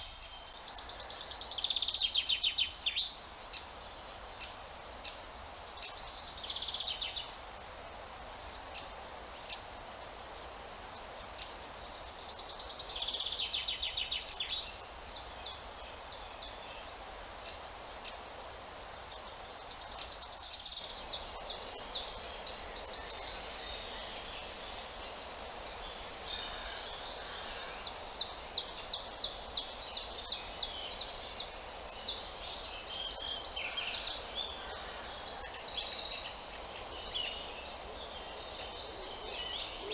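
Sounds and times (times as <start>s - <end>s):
songbirds singing: 0.0s - 39.9s.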